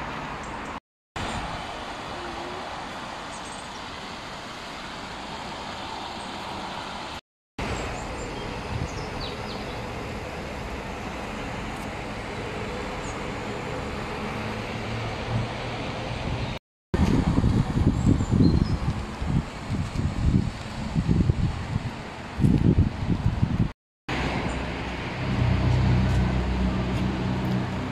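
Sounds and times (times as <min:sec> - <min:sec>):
road traffic running past: 0:00.0 - 0:23.4, 0:24.1 - 0:27.9
low engine hum: 0:06.7 - 0:27.9.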